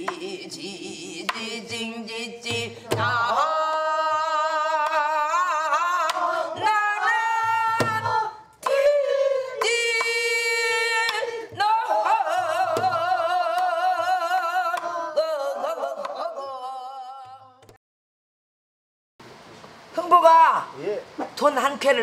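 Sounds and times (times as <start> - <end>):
person singing with vibrato: 0.0 - 17.6.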